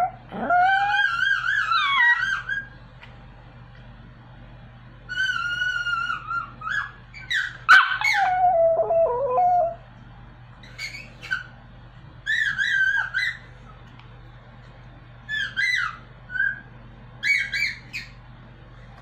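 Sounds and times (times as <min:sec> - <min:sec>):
dog howling: 0:00.0 - 0:02.7, 0:05.1 - 0:09.8.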